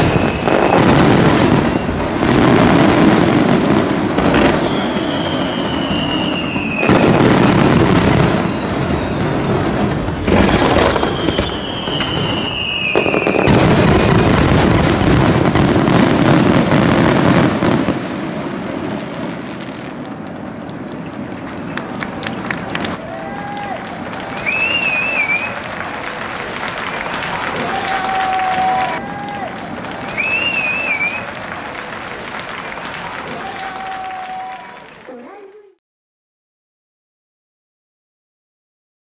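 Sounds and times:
falling firework whistles: 0:00.0 - 0:34.8
fireworks bursting: 0:00.0 - 0:35.6.

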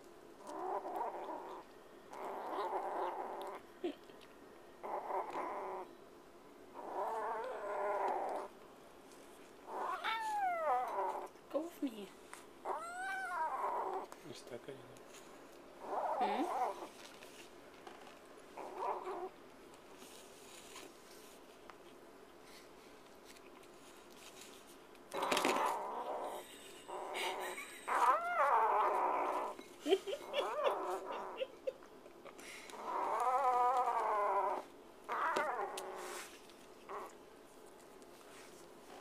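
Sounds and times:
kitten growling: 0:00.4 - 0:04.2, 0:04.8 - 0:05.9, 0:06.7 - 0:08.5, 0:09.6 - 0:11.3, 0:12.6 - 0:14.2, 0:15.8 - 0:16.9, 0:18.6 - 0:19.3, 0:25.1 - 0:29.6, 0:30.2 - 0:31.7, 0:32.7 - 0:37.2.

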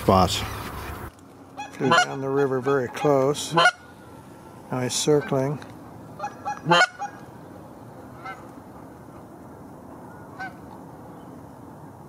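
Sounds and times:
goose honking: 0:01.6 - 0:04.2, 0:06.2 - 0:07.3, 0:08.2 - 0:08.5, 0:10.4 - 0:10.6.

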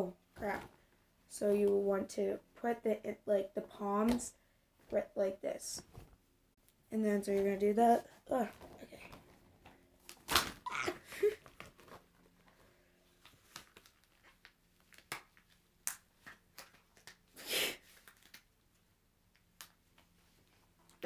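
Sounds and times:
rubber swim cap rustling: 0:07.2 - 0:18.6.

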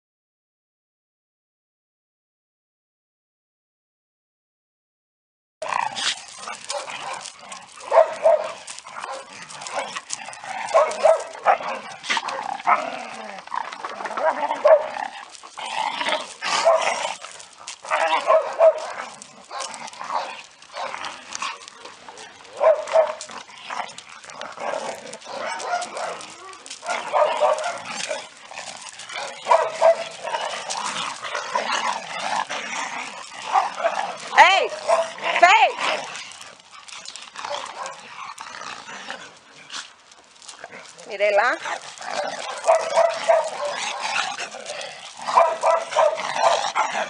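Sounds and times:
dogs barking and yipping: 0:05.6 - 0:47.0.

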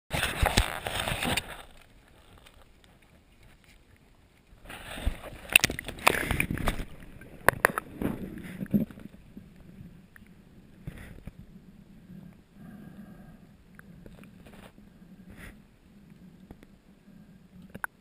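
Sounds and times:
water splashing and sloshing: 0:00.1 - 0:12.6.

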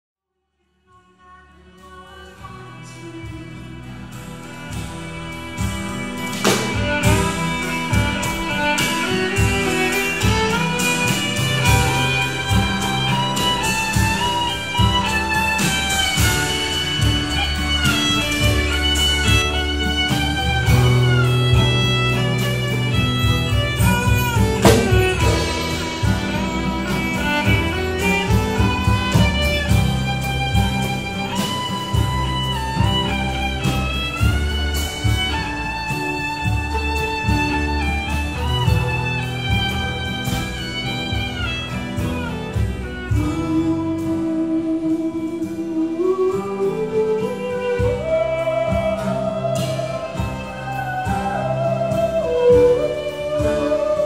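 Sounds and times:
fiddle melody: 0:01.1 - 0:54.0
double bass: 0:01.4 - 0:54.0
strummed acoustic guitar: 0:01.5 - 0:54.0
folk band playing: 0:01.6 - 0:54.0
drum kit: 0:02.1 - 0:54.0
drum crash: 0:04.1 - 0:44.1.

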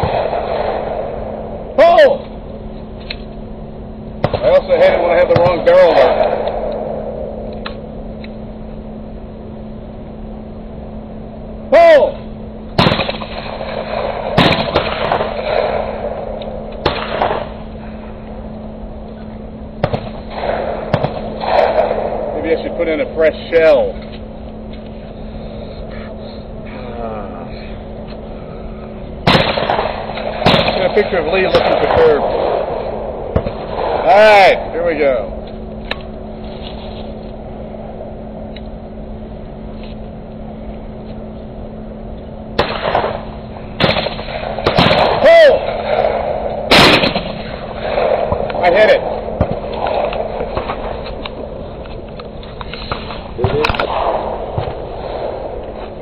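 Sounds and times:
shotgun shot: 0:00.0 - 0:01.2, 0:04.2 - 0:06.7, 0:12.8 - 0:16.2, 0:16.8 - 0:17.6, 0:19.8 - 0:22.6, 0:29.2 - 0:34.5, 0:42.6 - 0:51.0, 0:52.9 - 0:55.6
faint hum: 0:00.0 - 0:56.0
low outdoor rumble: 0:00.0 - 0:56.0.

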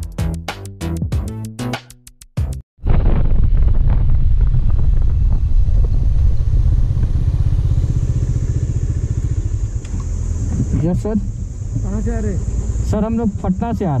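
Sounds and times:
motorcycle engine running: 0:03.5 - 0:14.0.

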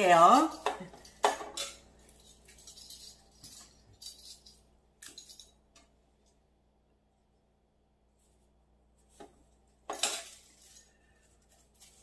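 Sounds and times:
flower stems tapping and rustling: 0:09.0 - 0:12.0.

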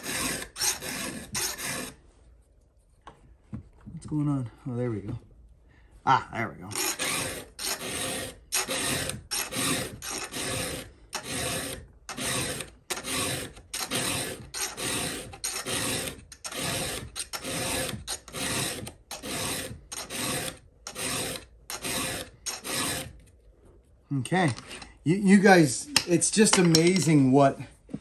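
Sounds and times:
file rasping on steel chain: 0:00.0 - 0:02.0, 0:06.7 - 0:23.2.

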